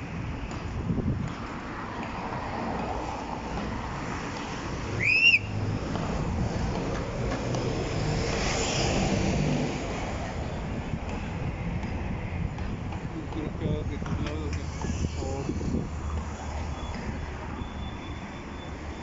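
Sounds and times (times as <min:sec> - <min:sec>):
wind on microphone: 0:00.0 - 0:03.0, 0:03.9 - 0:17.6
street traffic: 0:00.0 - 0:19.0
short high whistle: 0:05.0 - 0:05.5.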